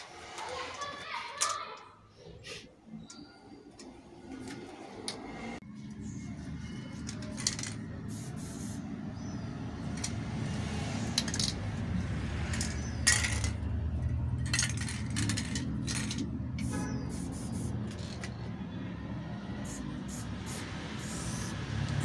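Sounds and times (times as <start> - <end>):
spray paint cans hissing: 6.8 - 10.1, 12.4 - 13.6, 14.4 - 18.4, 19.6 - 22.0.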